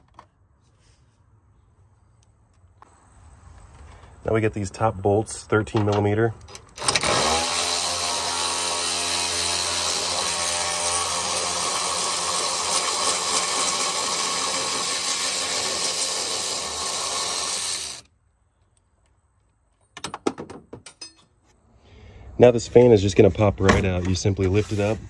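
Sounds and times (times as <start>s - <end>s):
electric ratchet motor whine: 6.8s - 18.1s.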